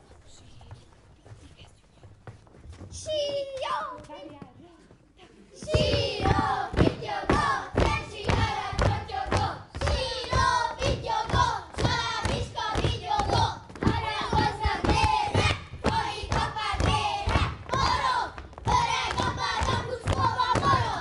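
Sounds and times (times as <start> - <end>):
feet stamping on stage floor: 0.0 - 21.0
children singing together: 5.6 - 21.0.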